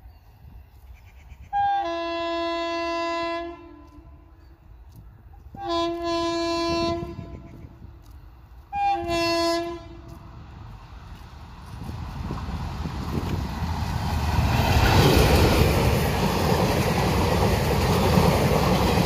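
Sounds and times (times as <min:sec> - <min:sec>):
locomotive horn blasts: 0:01.5 - 0:04.4, 0:05.5 - 0:07.7, 0:08.7 - 0:10.3.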